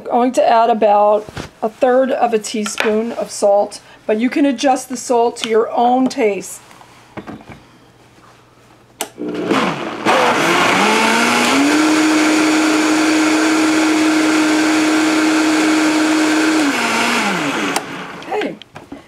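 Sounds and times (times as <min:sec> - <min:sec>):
blender motor whine: 0:09.2 - 0:18.3
blender switch click: 0:17.7 - 0:17.9.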